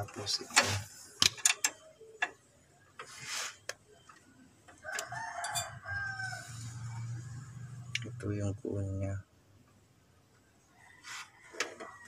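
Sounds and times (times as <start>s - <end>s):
rooster crowing: 4.8s - 7.7s.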